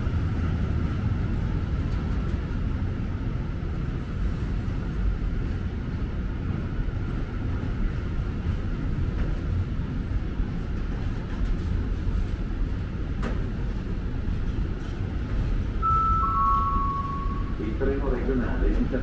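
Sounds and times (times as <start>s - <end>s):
train rumble: 0.0s - 19.0s
two-note falling chime: 15.8s - 17.6s.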